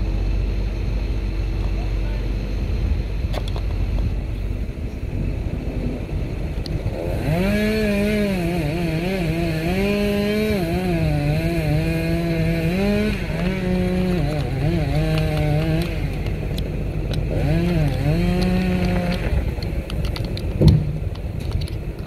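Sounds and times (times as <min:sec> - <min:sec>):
steady low rumble: 0:00.0 - 0:22.0
engine revving high: 0:04.8 - 0:19.9.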